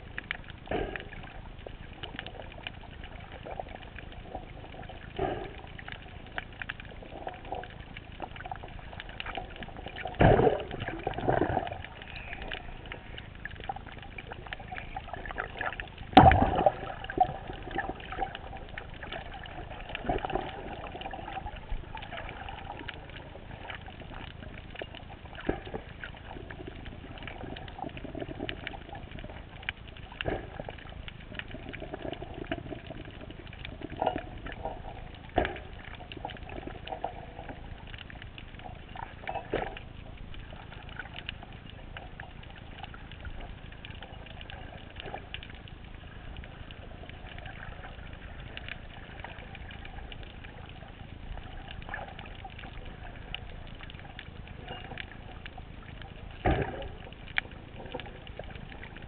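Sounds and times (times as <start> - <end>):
muffled underwater hiss: 0.0 - 59.0
small clicks and crackles: 0.0 - 59.0.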